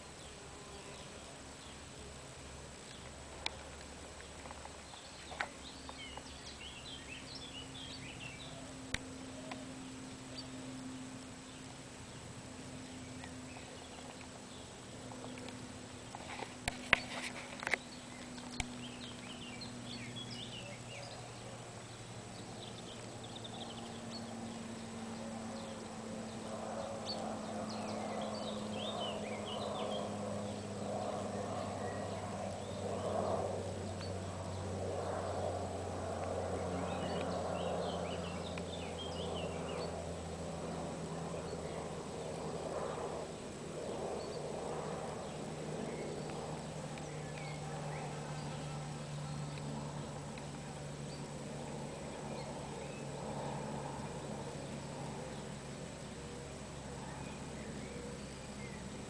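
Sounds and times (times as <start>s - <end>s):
faint low hum: 0.0s - 59.0s
small birds chirping: 2.8s - 59.0s.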